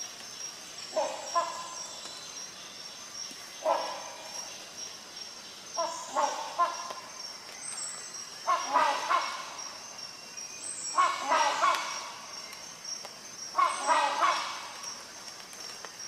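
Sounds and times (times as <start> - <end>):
hornbill honking calls: 5.8 - 6.9, 8.4 - 9.6, 10.9 - 12.2, 13.6 - 14.8.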